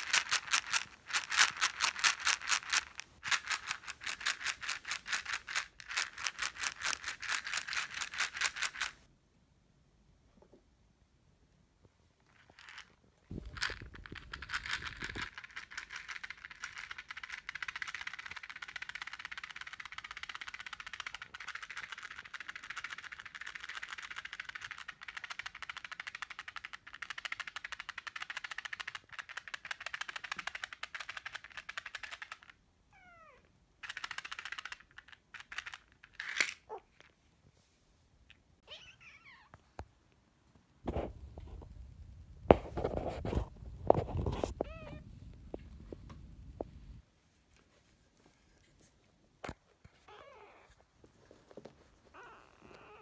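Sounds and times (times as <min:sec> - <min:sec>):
kittens mewing: 0:38.6 - 0:39.6.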